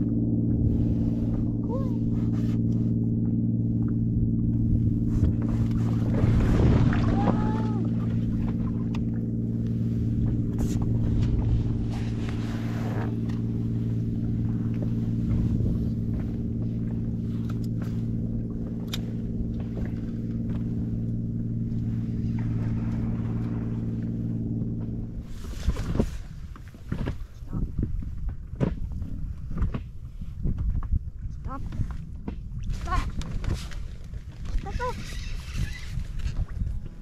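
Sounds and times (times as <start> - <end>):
boat engine humming: 0.0 - 30.4, 31.0 - 37.0.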